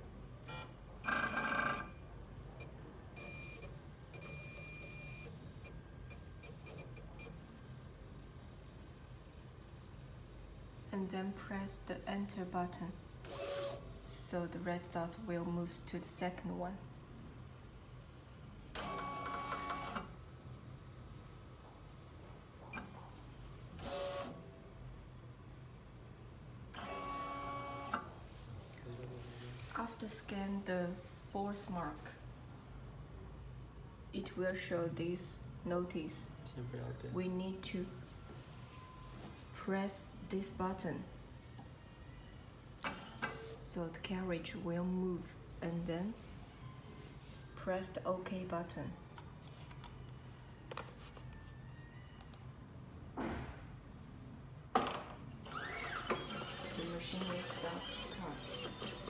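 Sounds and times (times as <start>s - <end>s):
stepper motors whining: 55.4s - 59.0s.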